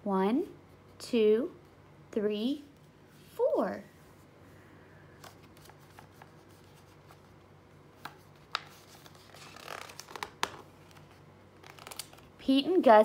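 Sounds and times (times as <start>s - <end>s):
paper page rustling: 5.2s - 12.3s.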